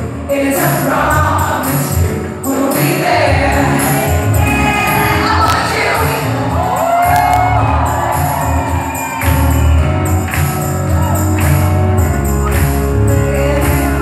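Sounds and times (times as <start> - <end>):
live pop band playing: 0.0 - 14.0
woman singing: 0.3 - 6.6, 13.1 - 14.0.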